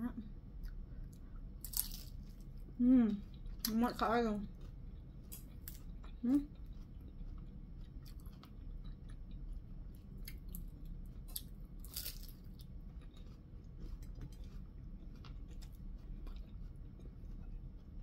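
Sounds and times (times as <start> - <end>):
chewing with crunching clicks: 0.6 - 18.0
loud crunch of spring roll: 1.6 - 2.3, 11.3 - 12.6.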